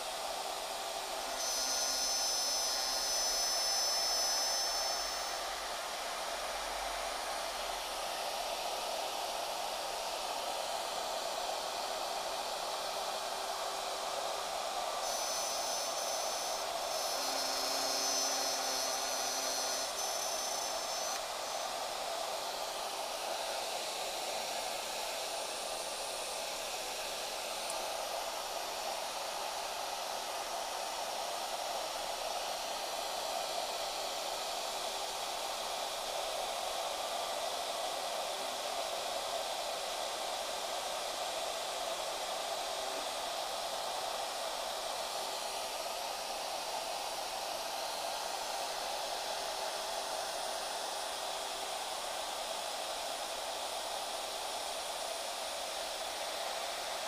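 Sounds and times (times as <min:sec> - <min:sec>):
high whine: 0:00.0 - 0:08.6, 0:10.7 - 0:24.1
router spindle whirring: 0:00.0 - 0:57.0.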